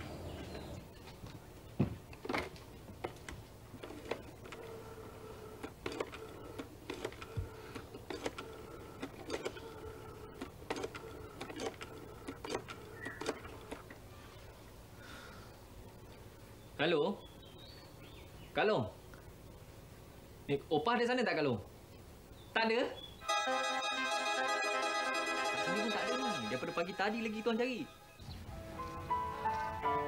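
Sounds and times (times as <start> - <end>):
telephone dialling clicks: 5.5 - 13.9.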